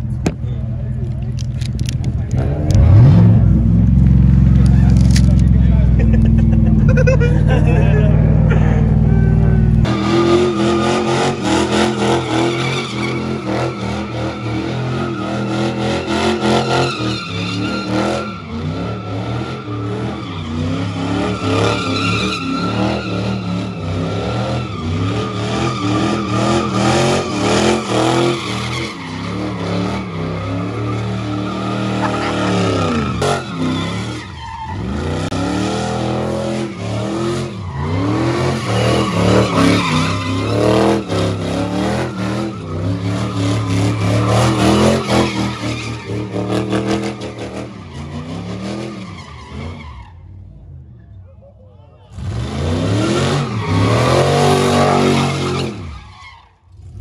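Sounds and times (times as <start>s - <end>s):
tires squealing: 0.0s - 51.3s, 51.9s - 57.0s
car engine revving high: 2.3s - 34.2s.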